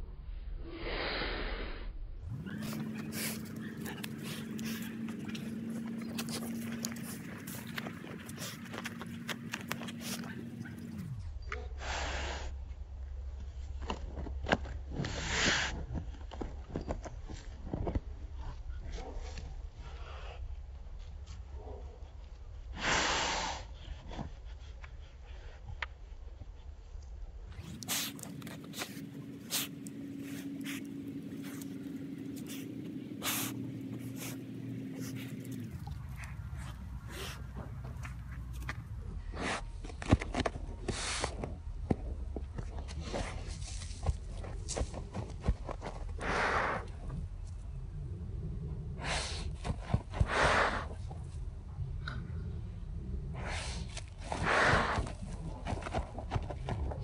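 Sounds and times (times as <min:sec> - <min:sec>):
steady low hum: 0:01.8 - 0:22.8, 0:23.6 - 0:57.0
dog claws scratching dirt: 0:02.3 - 0:11.2, 0:27.5 - 0:47.2, 0:53.6 - 0:57.0
dog sniffing: 0:02.3 - 0:11.2, 0:27.6 - 0:41.6.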